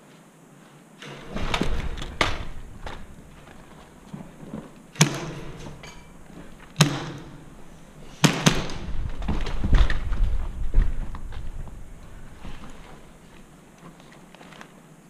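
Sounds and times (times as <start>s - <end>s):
footsteps on rubble: 1.2s - 14.8s
airsoft gun cracks echoing: 5.0s - 5.8s, 6.5s - 9.0s.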